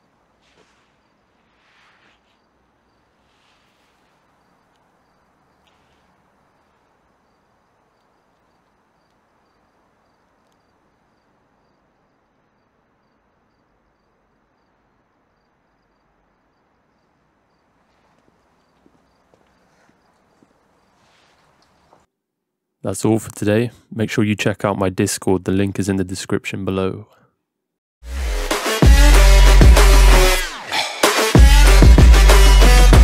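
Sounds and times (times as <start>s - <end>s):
faint crickets chirping: 0.0s - 22.1s.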